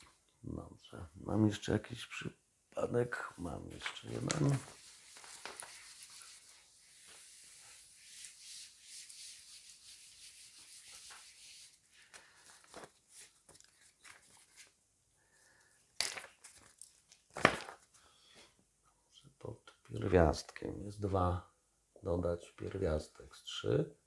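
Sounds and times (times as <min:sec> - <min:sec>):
eraser wiping whiteboard: 0:04.7 - 0:11.9.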